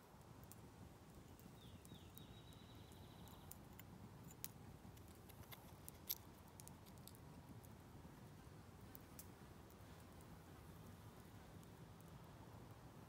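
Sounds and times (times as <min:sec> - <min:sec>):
faint clicks of stone blades: 0:01.3 - 0:07.7.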